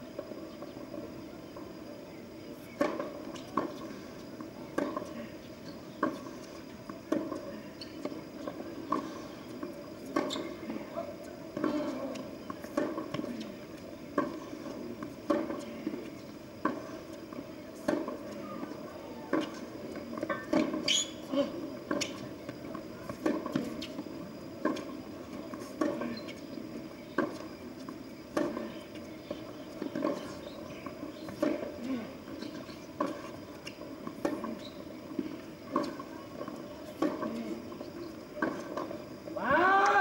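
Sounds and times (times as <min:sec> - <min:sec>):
shoe squeak on court: 0:07.8 - 0:08.1, 0:10.2 - 0:10.6, 0:20.3 - 0:21.3, 0:21.9 - 0:22.3
tennis ball struck by rackets: 0:28.3 - 0:31.8, 0:34.0 - 0:37.4.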